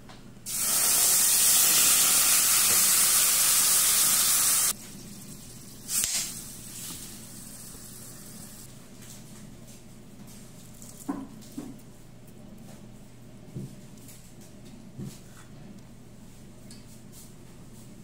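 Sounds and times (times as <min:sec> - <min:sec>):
coconut milk sizzling in pan: 0:00.5 - 0:08.7.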